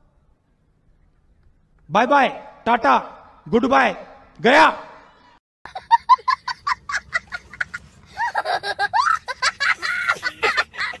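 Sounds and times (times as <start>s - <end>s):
young child laughing: 5.7s - 11.0s.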